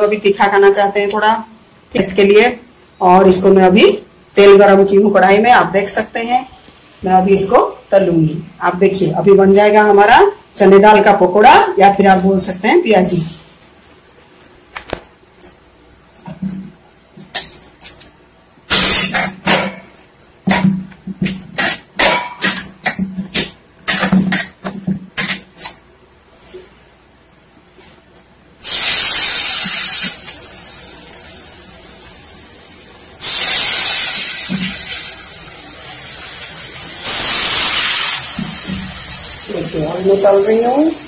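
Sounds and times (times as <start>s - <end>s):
steady fizz of frying: 28.6s - 41.0s
batter sizzling in hot oil: 33.2s - 41.0s.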